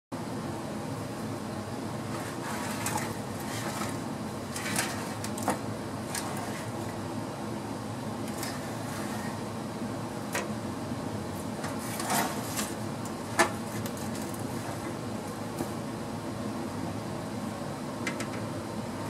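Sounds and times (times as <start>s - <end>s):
steady background hum: 0.1s - 19.0s
tray knocking and scraping: 2.1s - 6.8s.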